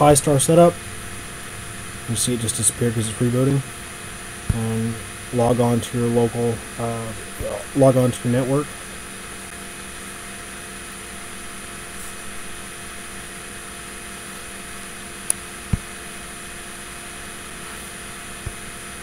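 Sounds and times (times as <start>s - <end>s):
faint constant tones: 0.0s - 19.0s
fan-like room hum: 0.0s - 19.0s.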